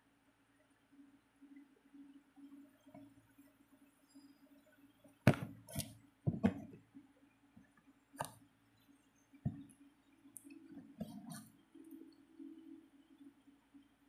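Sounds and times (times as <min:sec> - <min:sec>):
faint low hum: 0:00.0 - 0:14.0
plastic bottle knocking on hard surface: 0:05.3 - 0:05.6, 0:06.3 - 0:06.8.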